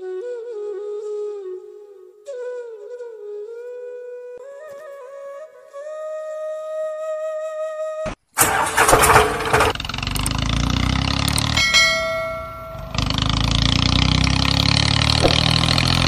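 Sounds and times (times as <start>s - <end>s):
tractor engine running: 8.4s - 16.0s
bell-like ding: 11.3s - 14.2s.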